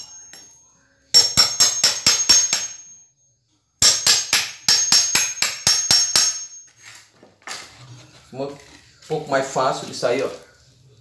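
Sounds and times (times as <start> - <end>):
hammer striking steel chisel: 0.0 - 3.0, 3.8 - 6.7.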